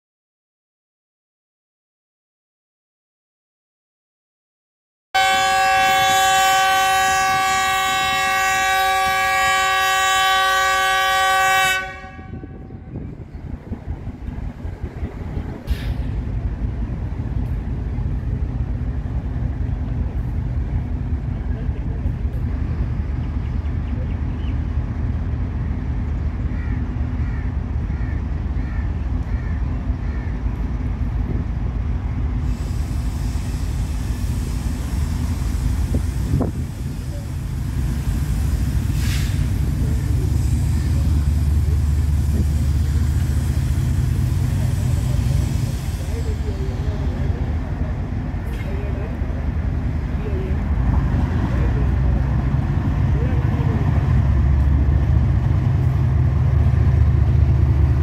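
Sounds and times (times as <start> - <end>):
locomotive air horn blast: 5.2 - 13.0, 38.6 - 40.4
locomotive engine droning: 5.2 - 58.0.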